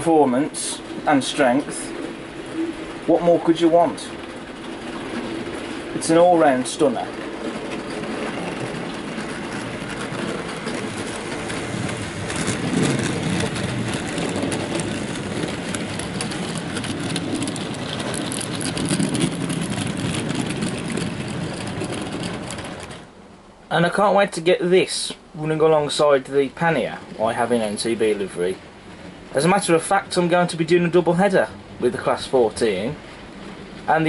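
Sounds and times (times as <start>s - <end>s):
model train wheels clicking: 0.0s - 23.1s.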